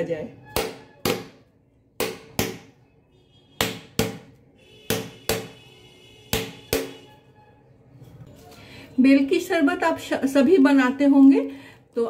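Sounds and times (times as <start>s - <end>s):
rolling pin knocking hard fruit shell: 0.5s - 1.4s, 2.0s - 2.7s, 3.6s - 5.6s, 6.3s - 7.0s.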